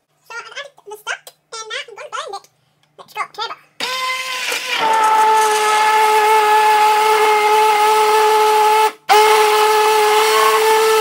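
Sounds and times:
stick blender motor whining: 3.8 - 11.0.

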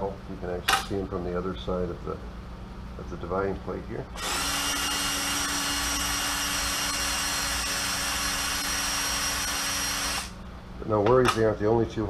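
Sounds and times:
cordless drill whining: 4.2 - 10.4.

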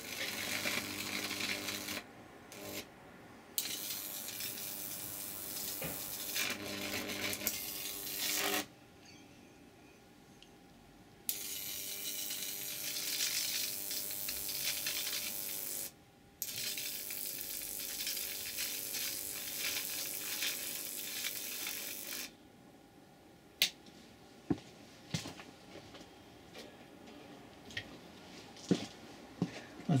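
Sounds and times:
electric arc crackling: 0.0 - 2.9, 3.6 - 8.7, 11.3 - 22.3
sharp electric snaps: 0.0 - 2.9, 3.6 - 8.7, 11.3 - 22.3.

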